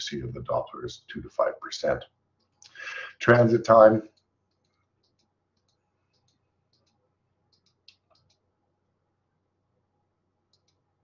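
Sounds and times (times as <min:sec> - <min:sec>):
faint computer clicks: 0:04.1 - 0:08.5, 0:10.5 - 0:10.9.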